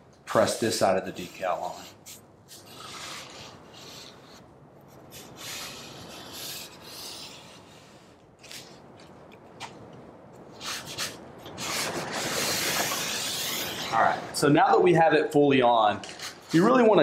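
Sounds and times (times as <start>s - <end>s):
squeegee scraping over decal: 1.0s - 4.4s, 5.0s - 8.8s, 10.6s - 14.2s.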